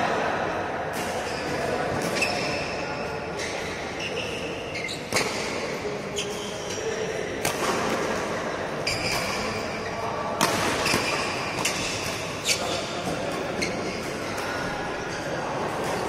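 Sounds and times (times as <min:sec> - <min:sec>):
shoes squeaking on court floor: 0:01.2 - 0:07.2, 0:08.8 - 0:10.2, 0:10.8 - 0:16.0
rackets hitting shuttlecock: 0:07.4 - 0:09.7, 0:10.3 - 0:14.9.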